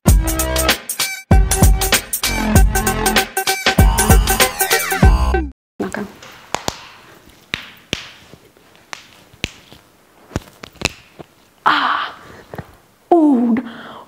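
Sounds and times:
electronic music: 0:00.1 - 0:05.5
knuckles cracking: 0:06.2 - 0:11.6.

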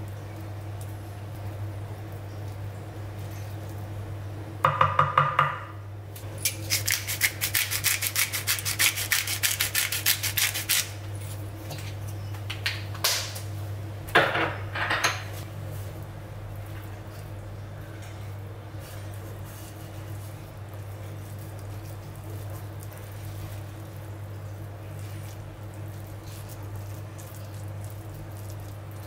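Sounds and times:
knife chopping on wooden board: 0:04.7 - 0:05.6.

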